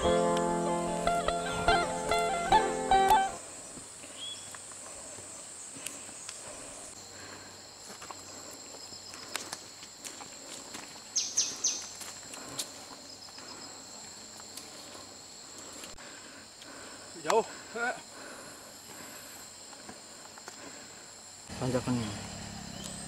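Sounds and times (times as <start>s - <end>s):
high-pitched insect drone: 0.0s - 3.7s
footsteps on dirt: 7.7s - 16.0s.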